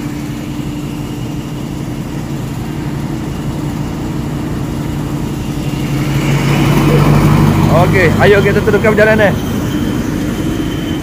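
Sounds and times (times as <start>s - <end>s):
diesel locomotive idling: 0.0s - 11.0s.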